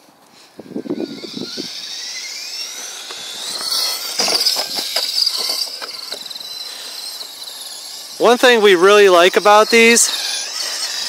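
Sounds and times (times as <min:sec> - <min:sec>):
toy truck electric motor whine: 0:00.0 - 0:11.0.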